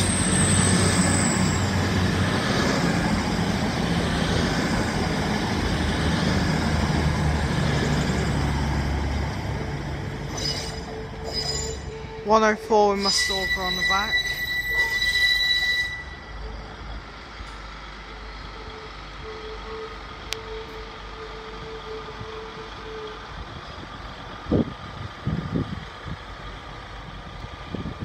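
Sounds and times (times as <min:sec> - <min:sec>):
train wheel squeal: 0:00.0 - 0:05.2, 0:06.0 - 0:08.8, 0:10.2 - 0:12.2, 0:12.8 - 0:16.7
faint train engine hum: 0:00.0 - 0:28.0.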